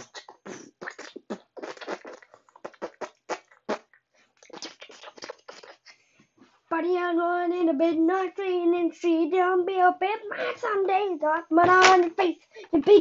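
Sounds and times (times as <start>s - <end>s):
boy beatboxing: 0.0s - 6.0s.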